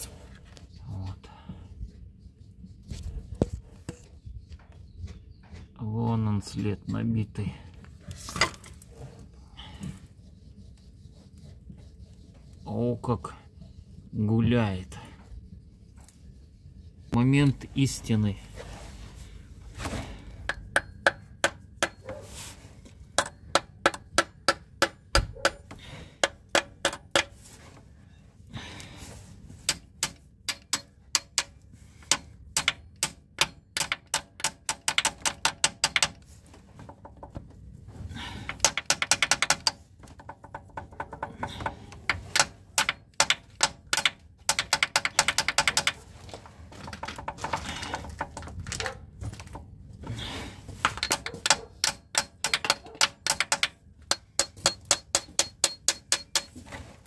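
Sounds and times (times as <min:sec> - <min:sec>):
ratchet wrench clicking: 0:51.0 - 0:56.5.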